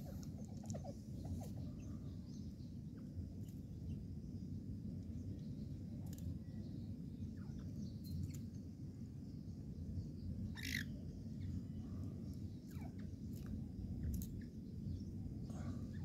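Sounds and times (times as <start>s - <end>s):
faint bird chirps: 0.0s - 4.5s, 5.2s - 8.5s, 9.3s - 16.0s
low steady rumble: 0.0s - 16.0s
harsh bird squawk: 10.6s - 10.9s.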